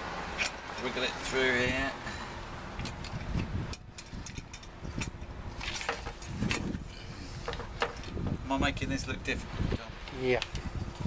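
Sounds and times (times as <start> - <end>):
headlight parts clicking and scraping: 0.3 - 1.0, 2.7 - 8.3, 10.0 - 11.0.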